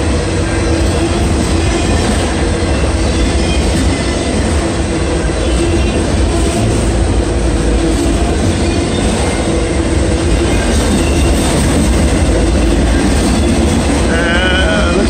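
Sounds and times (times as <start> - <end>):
steel wheels on rail: 0.0 - 15.0.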